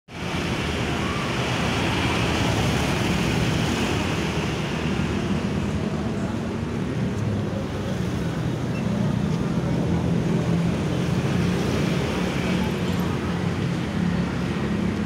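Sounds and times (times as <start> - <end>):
street traffic noise: 0.1 - 15.0.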